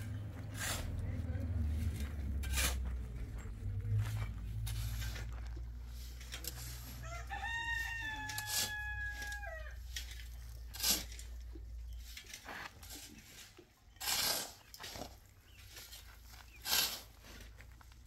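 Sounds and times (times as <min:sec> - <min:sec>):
low steady rumble: 0:00.0 - 0:13.0
rooster crowing: 0:07.0 - 0:09.8.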